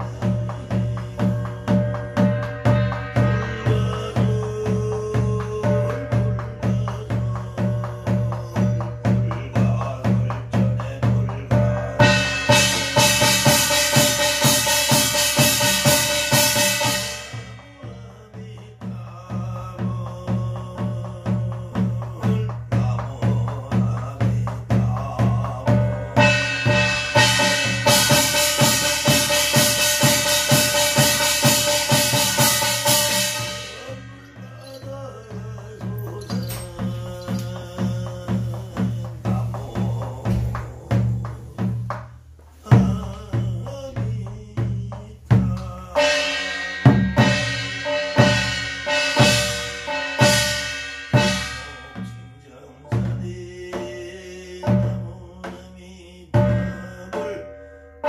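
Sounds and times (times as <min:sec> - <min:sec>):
barrel drum beating: 0:00.0 - 0:55.6
brass gong ringing: 0:02.2 - 0:04.4, 0:46.0 - 0:52.3.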